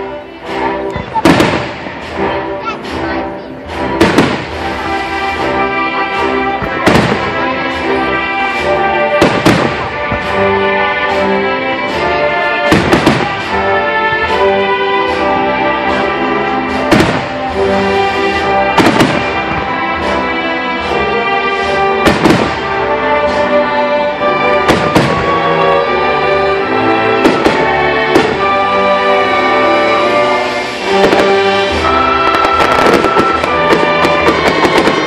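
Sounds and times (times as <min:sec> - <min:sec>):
orchestral music with brass: 0:00.0 - 0:35.0
firework shells bursting: 0:30.2 - 0:35.0.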